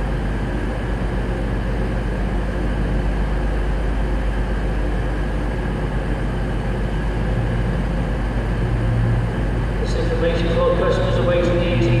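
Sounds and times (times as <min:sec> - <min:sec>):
diesel engines humming: 0:06.4 - 0:12.0.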